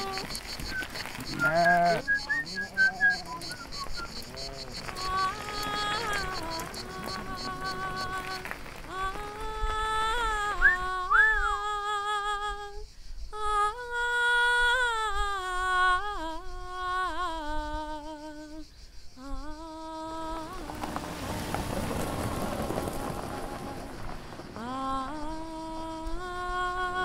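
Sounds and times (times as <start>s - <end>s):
man humming a slow tune: 1.4s - 12.8s, 13.4s - 20.6s, 24.6s - 27.0s.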